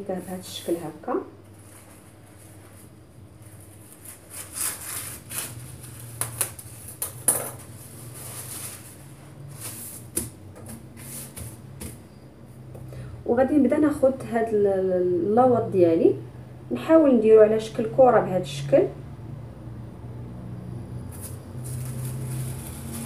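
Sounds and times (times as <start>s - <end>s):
plastic bag crinkling: 21.2s - 23.0s.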